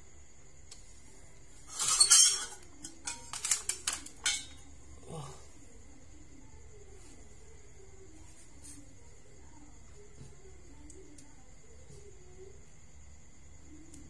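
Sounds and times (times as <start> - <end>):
metal forceps and tin clattering: 1.7 - 4.7.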